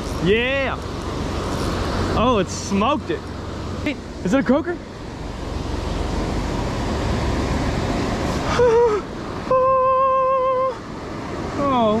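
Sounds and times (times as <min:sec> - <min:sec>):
person exclaiming: 0:08.5 - 0:10.8
person humming: 0:08.5 - 0:10.8.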